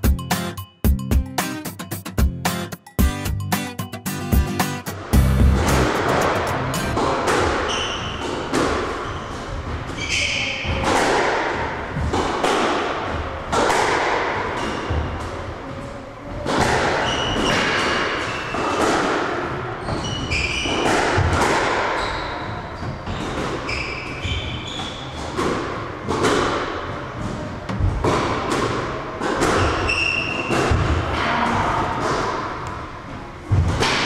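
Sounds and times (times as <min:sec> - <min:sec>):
squash ball thudding: 0:05.2 - 0:09.0, 0:27.7 - 0:31.4, 0:33.5 - 0:34.0
shoes squeaking on wooden floor: 0:22.0 - 0:25.3.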